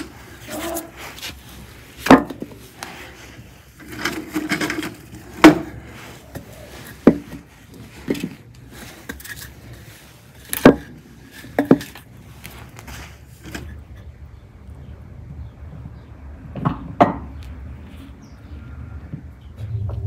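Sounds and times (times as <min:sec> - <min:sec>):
logs scraping: 0:00.0 - 0:14.1
wooden logs knocking: 0:02.0 - 0:02.6, 0:05.4 - 0:08.4, 0:10.5 - 0:12.0.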